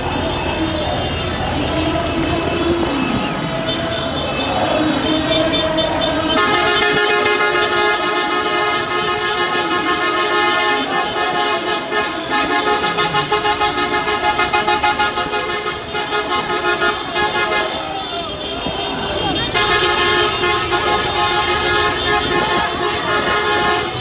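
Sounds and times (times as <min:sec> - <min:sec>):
car horns honking: 0:00.0 - 0:24.0.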